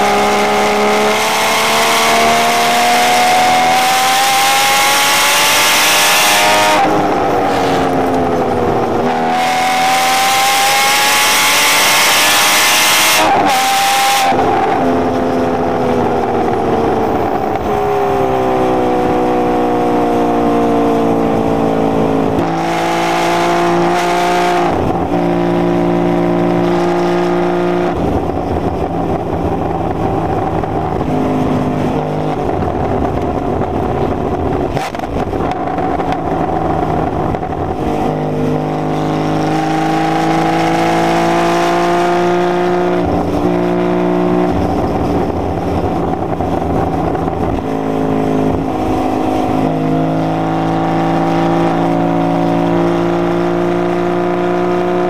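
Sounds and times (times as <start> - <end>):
sports car engine revving: 0.0 - 55.0.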